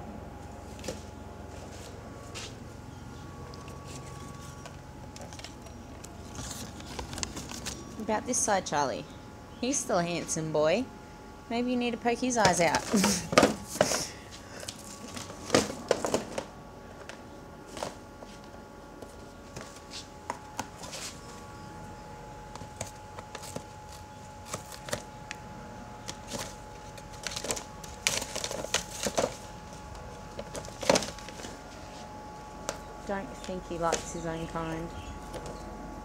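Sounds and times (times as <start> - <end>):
cardboard snapping and ripping: 22.5 - 25.2, 26.0 - 29.5, 30.3 - 31.6.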